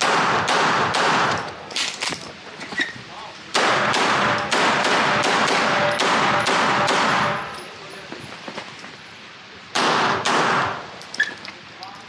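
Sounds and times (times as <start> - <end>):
pistol shots echoing indoors: 3.6 - 7.4.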